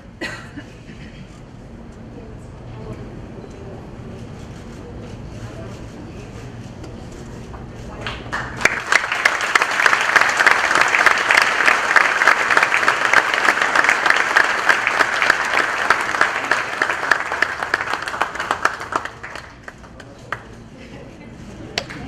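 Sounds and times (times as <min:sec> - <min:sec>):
audience applauding: 0:08.0 - 0:20.6.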